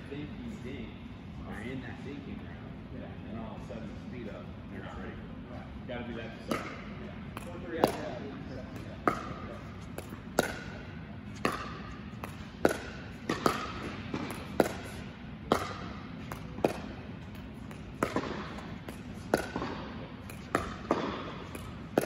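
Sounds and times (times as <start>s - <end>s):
paddles hitting plastic ball: 6.5s - 22.0s.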